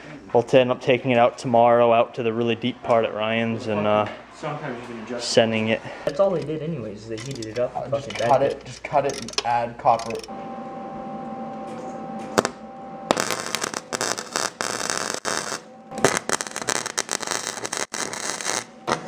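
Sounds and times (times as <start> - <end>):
welder hum: 9.9 - 19.0
welding arc crackling: 12.3 - 19.0.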